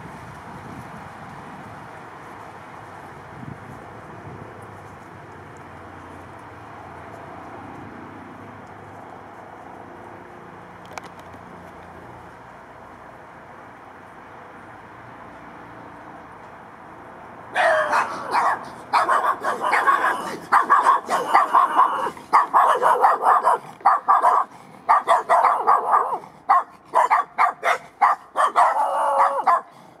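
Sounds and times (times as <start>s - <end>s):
small dog barking: 17.6s - 29.8s.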